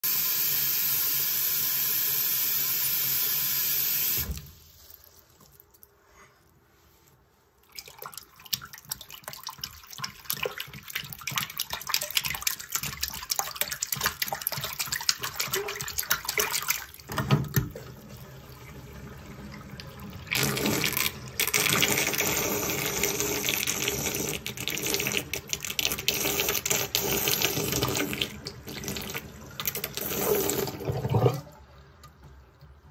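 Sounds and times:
hand sloshing water: 7.6s - 17.8s
sink draining: 7.7s - 32.7s
tap water running into sink: 8.4s - 32.4s.

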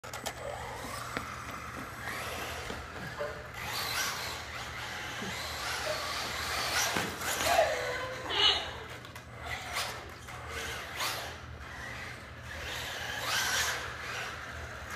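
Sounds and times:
tyre noise on tile floor: 0.1s - 10.5s
electric motor whining: 0.2s - 8.2s.

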